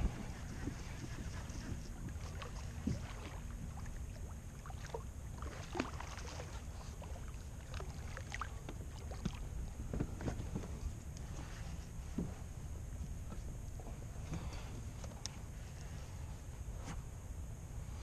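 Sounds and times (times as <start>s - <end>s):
wind rumble on microphone: 0.0s - 7.9s.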